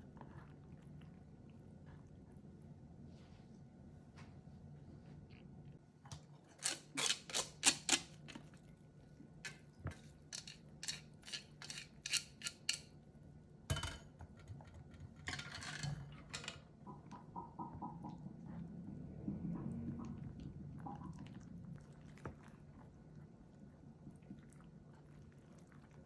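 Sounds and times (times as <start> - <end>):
chopsticks clicking on metal colander: 10.3 - 12.9.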